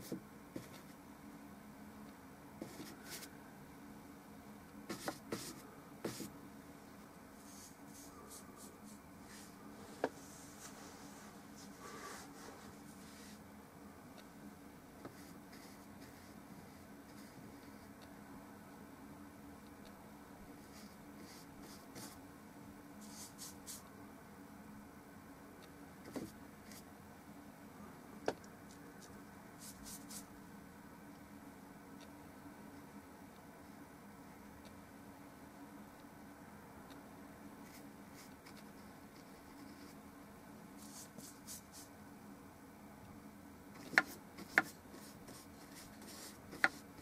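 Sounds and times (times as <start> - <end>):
low steady hum: 0.0 - 47.0
paintbrush scratchy strokes: 7.4 - 13.4, 23.0 - 23.8, 29.0 - 30.3, 40.8 - 41.9.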